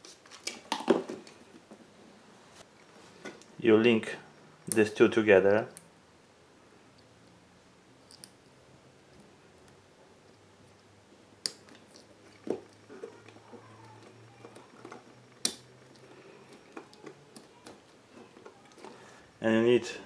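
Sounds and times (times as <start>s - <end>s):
wires handled with taps and rustles: 9.1s - 19.1s.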